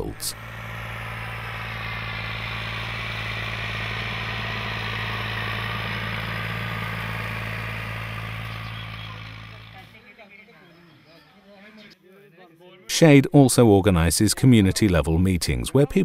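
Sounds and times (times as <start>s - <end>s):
tractor diesel engine droning: 0.0s - 11.2s.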